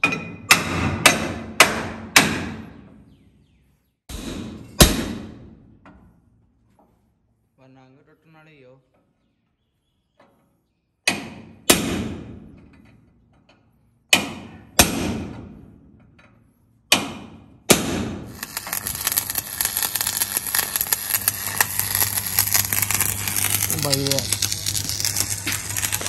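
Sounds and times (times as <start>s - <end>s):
low hum: 18.3s - 26.0s
steady crackling noise: 18.3s - 26.0s.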